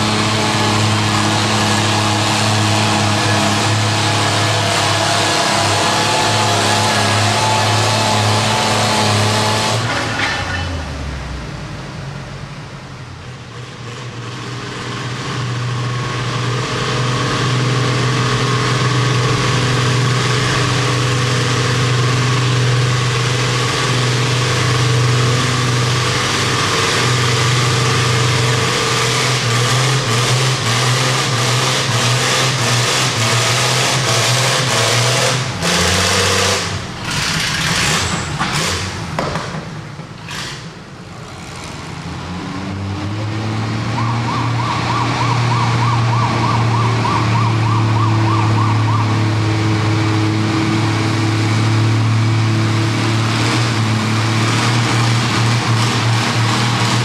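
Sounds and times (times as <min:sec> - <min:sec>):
tractor engine running under load: 0:00.0 - 0:09.7, 0:13.3 - 0:32.2, 0:46.2 - 0:57.0
tractor engine running steadily: 0:00.0 - 0:43.8, 0:44.7 - 0:57.0.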